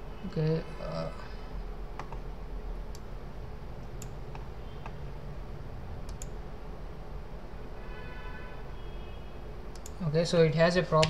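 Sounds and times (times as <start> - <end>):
low background hum: 0.0 - 11.0
computer mouse clicking: 6.0 - 6.4, 9.7 - 10.0.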